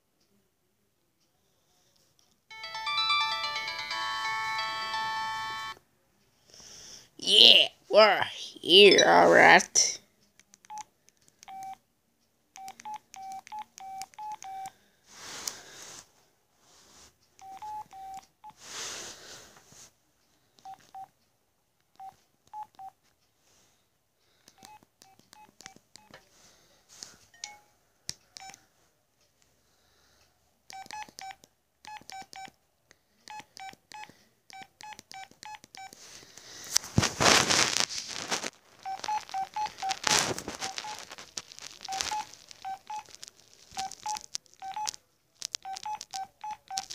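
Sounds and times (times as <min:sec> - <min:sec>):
phone keypad beeps: 0:02.5 - 0:05.8, 0:10.6 - 0:11.8, 0:12.6 - 0:14.8, 0:17.4 - 0:18.6, 0:20.6 - 0:21.1, 0:22.0 - 0:23.0, 0:24.5 - 0:26.2, 0:27.3 - 0:27.7, 0:28.3 - 0:28.6, 0:30.7 - 0:32.6, 0:33.3 - 0:36.0, 0:38.8 - 0:41.1, 0:41.8 - 0:43.2, 0:43.8 - 0:46.9.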